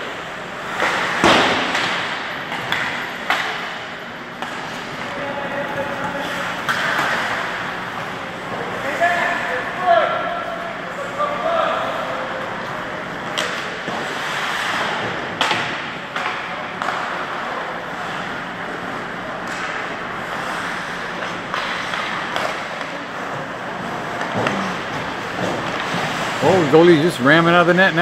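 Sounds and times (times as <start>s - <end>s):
sharp cracks of hockey sticks: 13.3s - 17.5s, 19.4s - 23.0s.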